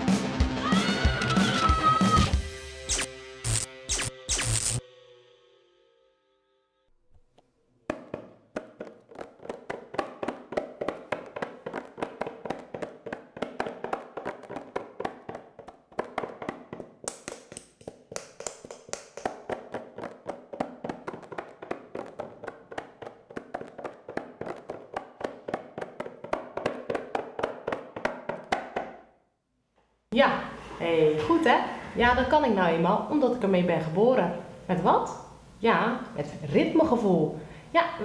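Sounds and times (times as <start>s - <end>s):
hand drum slaps and taps: 7.9s - 29.0s.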